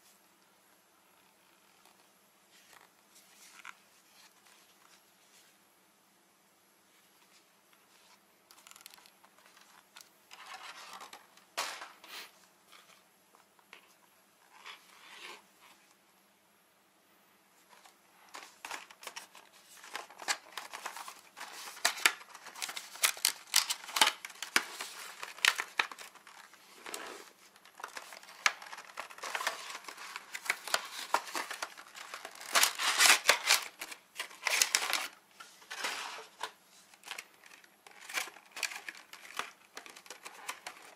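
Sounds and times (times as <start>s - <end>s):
plastic packaging crinkling: 8.5s - 12.0s, 17.7s - 40.9s.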